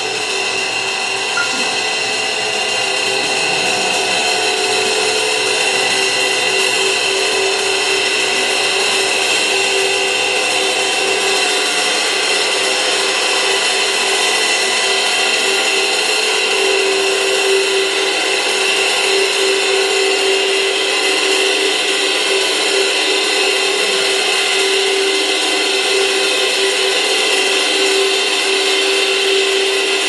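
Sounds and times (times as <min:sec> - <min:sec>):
suspended cymbals wash: 0:01.4 - 0:08.4.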